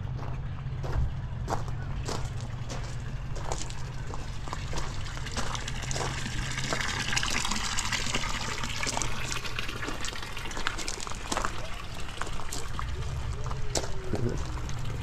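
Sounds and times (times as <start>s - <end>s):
water splashing through sluice: 3.6s - 15.0s.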